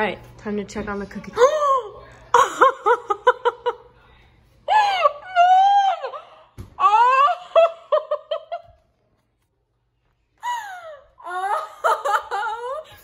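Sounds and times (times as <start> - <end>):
woman wailing: 4.7 - 7.8, 10.4 - 12.9.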